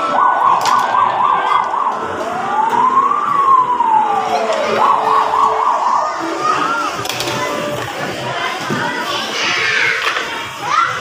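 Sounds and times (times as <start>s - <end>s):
electronic siren yelping and wailing: 0.0s - 6.9s.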